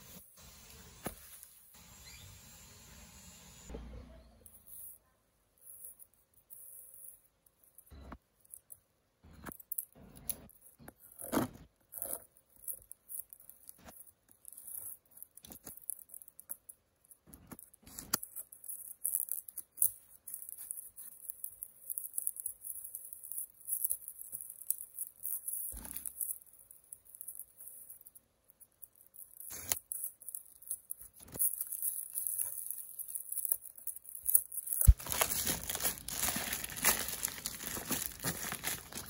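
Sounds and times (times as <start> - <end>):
plastic crinkling and tearing: 28.8 - 39.0
scissors snipping plastic: 29.3 - 39.0.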